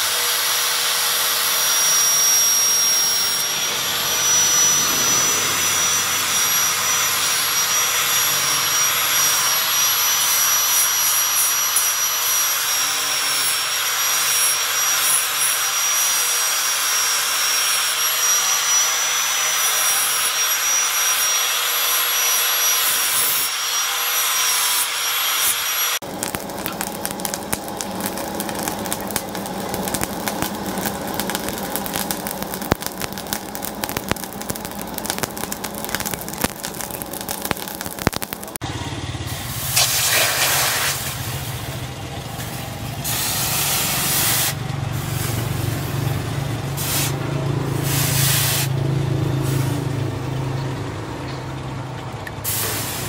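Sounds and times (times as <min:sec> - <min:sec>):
angle grinder grinding steel: 0:00.0 - 0:38.6
forge rushing and crackling: 0:02.7 - 0:09.8, 0:26.0 - 0:38.6.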